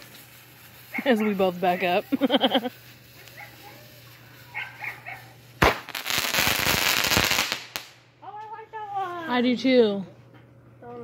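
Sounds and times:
firework crackling hiss: 0:00.0 - 0:08.1.

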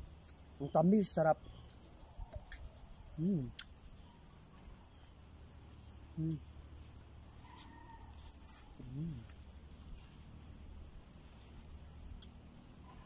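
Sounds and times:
crickets trilling: 0:00.0 - 0:13.0
short voiced hum: 0:03.2 - 0:03.6, 0:06.2 - 0:06.5, 0:08.8 - 0:09.4.

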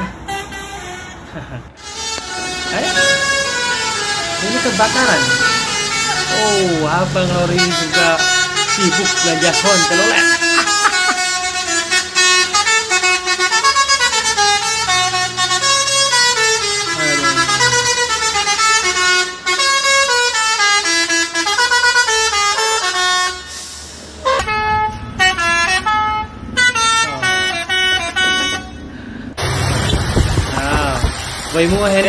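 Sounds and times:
musical air horn tune: 0:00.0 - 0:01.2, 0:01.8 - 0:28.9
choppy horn notes: 0:00.0 - 0:23.6.

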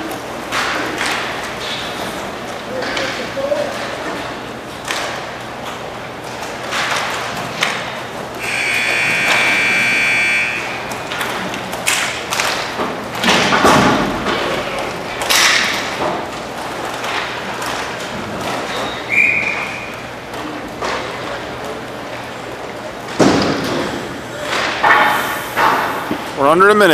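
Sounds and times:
puck and sticks hitting boards: 0:00.0 - 0:21.7, 0:23.0 - 0:26.4
shrill whistle: 0:08.4 - 0:10.7, 0:18.9 - 0:19.9.

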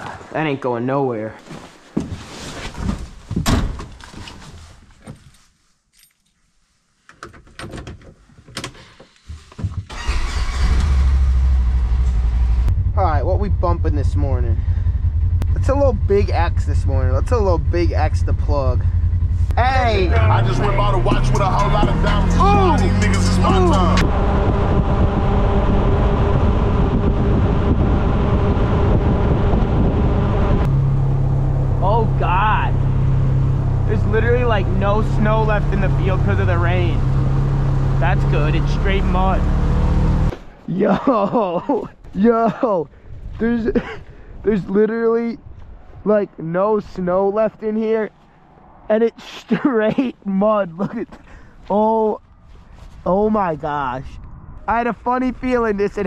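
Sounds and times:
keys jingling: 0:05.9 - 0:06.4
wind and travel rumble: 0:07.2 - 0:40.7, 0:42.8 - 0:56.0
engine starting and idling: 0:09.9 - 0:12.4
vehicle engine running: 0:10.8 - 0:40.3.

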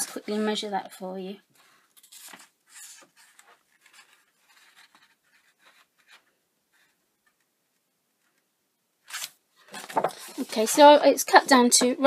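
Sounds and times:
ruler and card rustling: 0:01.6 - 0:07.5, 0:08.3 - 0:12.0.

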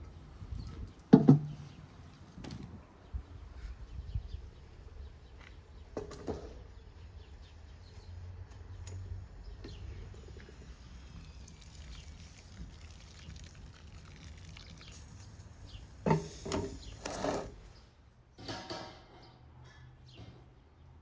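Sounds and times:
water pouring into a bowl: 0:10.9 - 0:15.6.

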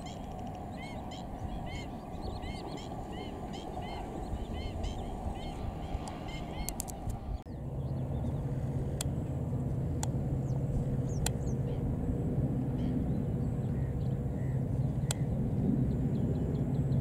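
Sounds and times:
faint bird calls: 0:00.0 - 0:07.5, 0:12.7 - 0:15.4
diesel locomotive engine drone: 0:00.0 - 0:17.0
sharp clicks: 0:06.0 - 0:07.2.

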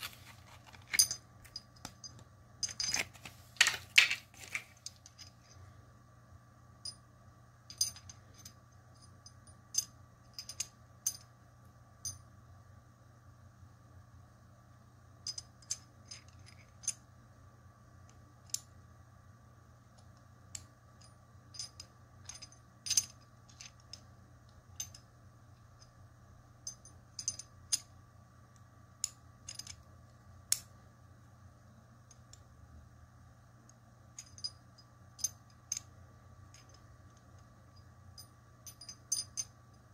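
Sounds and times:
metal puzzle pieces clinking: 0:00.0 - 0:05.6.

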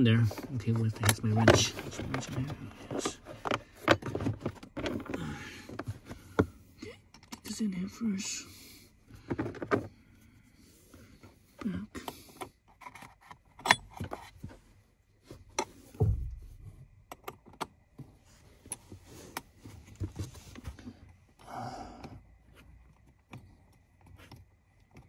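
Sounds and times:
dull thump: 0:16.0 - 0:16.8.

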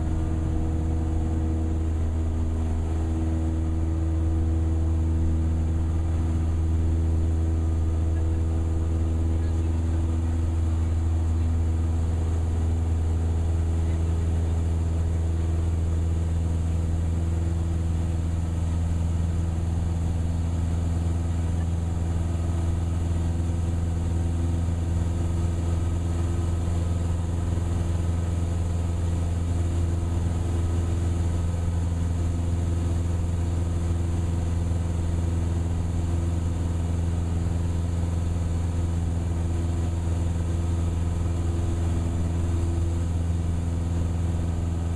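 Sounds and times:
light aircraft engine droning: 0:00.0 - 0:44.9.

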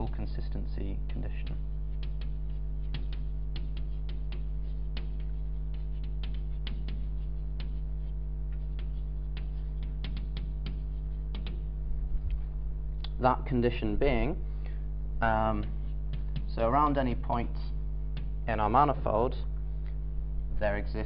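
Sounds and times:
chalk tapping and scraping: 0:00.0 - 0:11.8, 0:15.4 - 0:19.1
electrical mains hum: 0:00.0 - 0:21.0.

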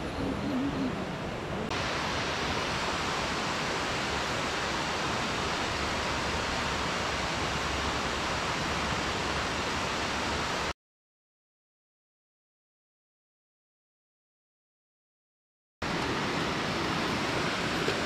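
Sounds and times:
river water rushing: 0:00.0 - 0:10.7, 0:15.8 - 0:18.0.

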